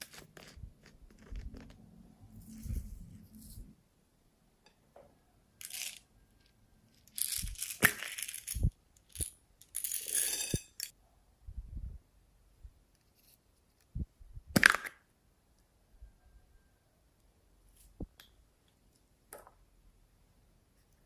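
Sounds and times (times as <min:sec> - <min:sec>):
plastic toy eggs clicking and rattling: 0:07.0 - 0:09.8.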